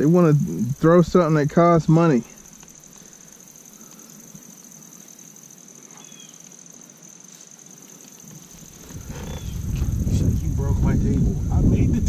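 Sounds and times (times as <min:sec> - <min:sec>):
insects trilling: 0:00.0 - 0:12.0
faint chirp: 0:05.9 - 0:06.4.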